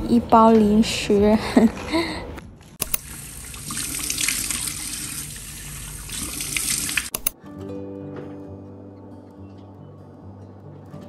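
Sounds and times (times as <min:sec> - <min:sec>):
faucet water splashing: 0:02.8 - 0:07.3.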